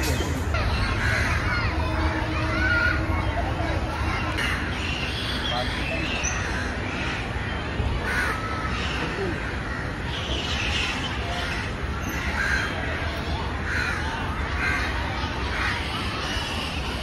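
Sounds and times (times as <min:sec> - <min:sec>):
low background rumble: 0:00.0 - 0:05.8
crows cawing: 0:08.0 - 0:10.0, 0:11.4 - 0:12.8, 0:13.7 - 0:14.9.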